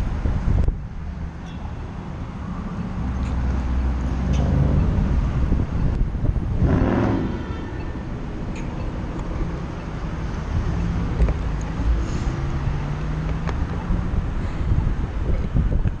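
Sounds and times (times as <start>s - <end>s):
wind buffeting microphone: 0.0s - 1.4s, 2.2s - 16.0s
car engines running: 0.0s - 16.0s
vehicles passing: 0.0s - 16.0s.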